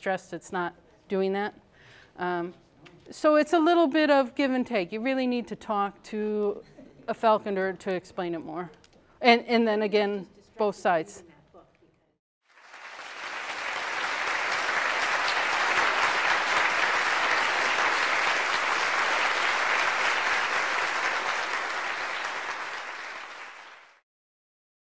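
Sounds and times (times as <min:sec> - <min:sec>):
audience applauding: 0:12.5 - 0:24.0.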